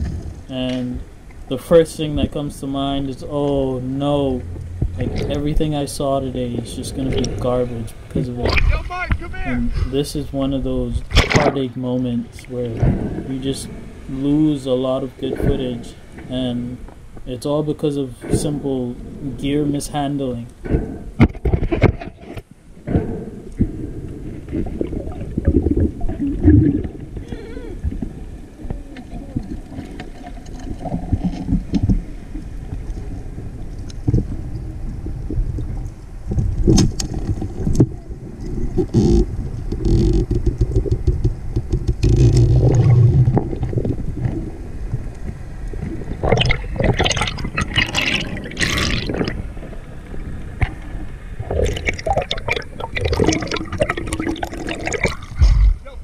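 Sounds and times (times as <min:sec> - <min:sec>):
muffled underwater rumble: 0:00.0 - 0:56.0
swirling water bursts: 0:45.7 - 0:55.8.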